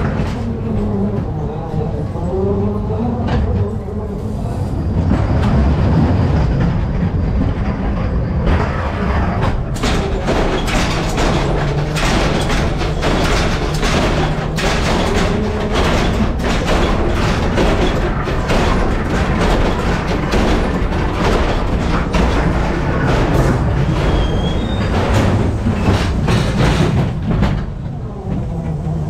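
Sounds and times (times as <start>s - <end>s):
rattling and clattering: 0.0s - 4.2s, 4.9s - 29.0s
ride car rumbling on track: 0.0s - 29.0s.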